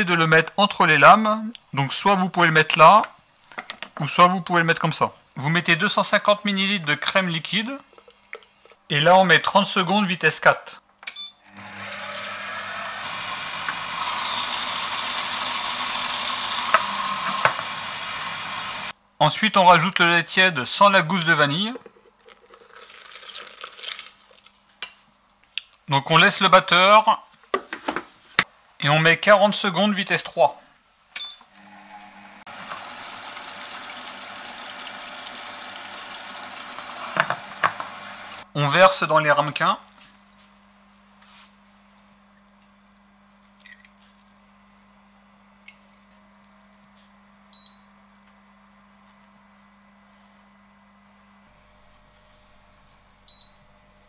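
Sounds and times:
food processor motor whirring: 11.5 - 18.9, 31.6 - 38.4.

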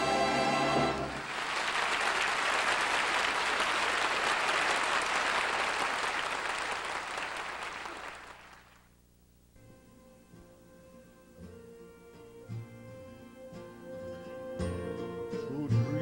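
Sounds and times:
audience applauding: 0.9 - 8.9.

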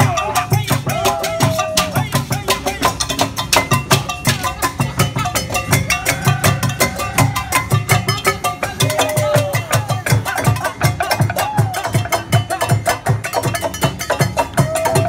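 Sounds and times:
metal ringing: 0.0 - 11.3
drumming on pots and barrels: 0.0 - 15.0.

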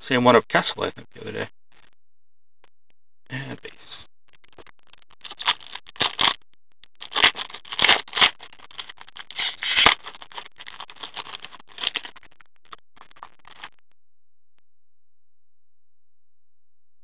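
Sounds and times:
cards scraping and rustling: 5.3 - 6.4, 7.0 - 12.1.

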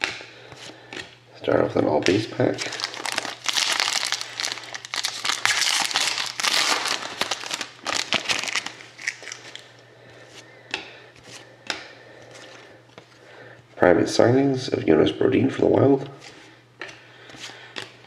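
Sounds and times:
foil wrapper crinkling: 2.0 - 9.7.

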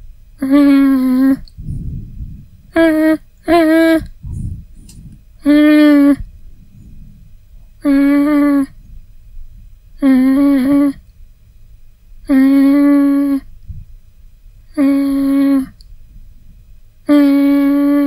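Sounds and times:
person humming: 0.4 - 7.0, 7.8 - 8.8, 10.0 - 11.0, 12.2 - 13.5, 14.7 - 15.9, 17.0 - 18.0.

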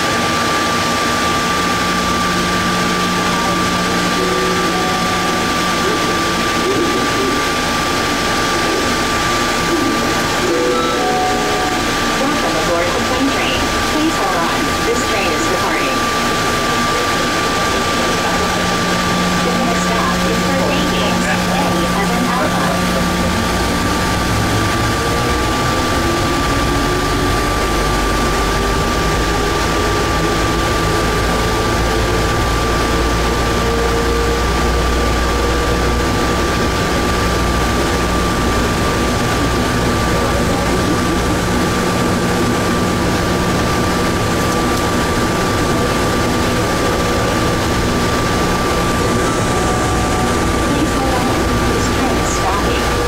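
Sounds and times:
train rolling rumble: 0.0 - 53.0
motor whine rising in pitch: 0.1 - 53.0
constant high-pitched tone: 1.3 - 53.0.

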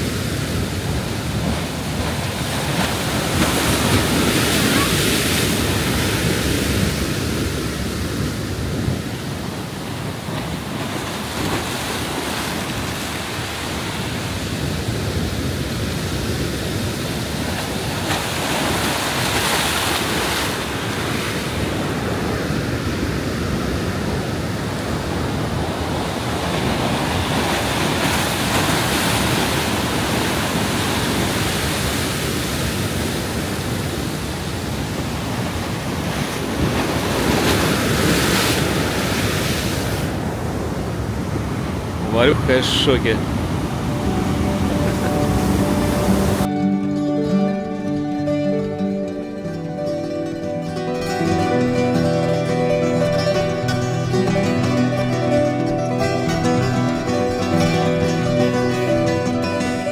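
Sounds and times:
surf breaking against pilings: 1.0 - 6.8, 9.8 - 13.8, 17.4 - 21.5, 26.2 - 32.2, 35.4 - 40.1.

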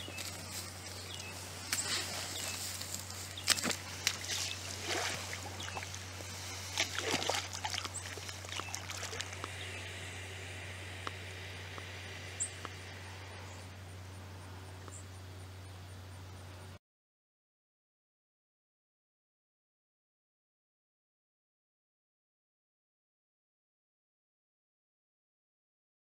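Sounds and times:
rustling in grass: 0.0 - 14.7
faint water sounds: 0.0 - 15.8
alligator splashing into water: 3.4 - 9.5.

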